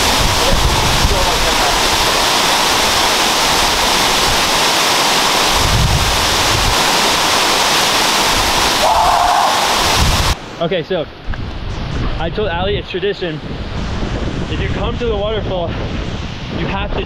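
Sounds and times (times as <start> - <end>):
wind buffeting microphone: 0.0 - 10.4, 11.1 - 17.0
waterfall rushing: 0.0 - 10.8.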